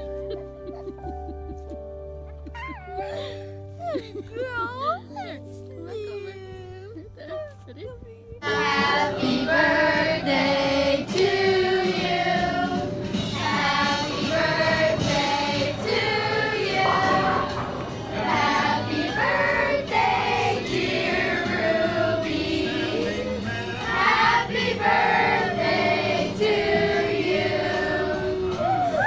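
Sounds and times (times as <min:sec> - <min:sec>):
women singing together: 0:08.4 - 0:28.8
musical accompaniment: 0:08.4 - 0:29.0.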